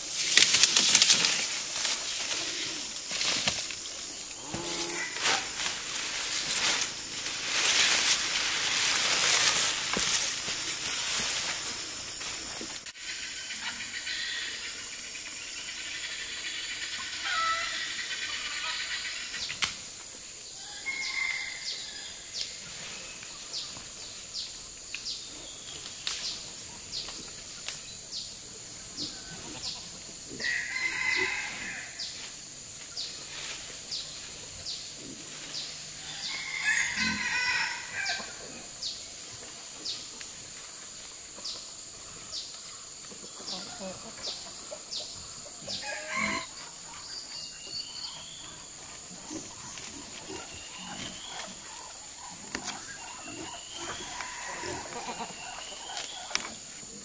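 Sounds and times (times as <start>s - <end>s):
high insect drone: 0.0s - 57.0s
roosters crowing: 1.9s - 11.8s, 17.2s - 18.8s, 20.6s - 22.5s, 29.0s - 32.3s, 35.8s - 38.8s, 43.4s - 46.8s, 49.2s - 56.7s.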